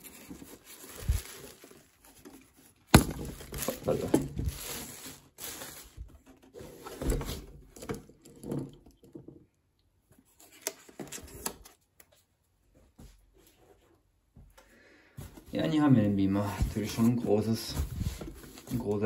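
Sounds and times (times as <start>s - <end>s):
wrapping sheet rustling: 0.0s - 6.1s.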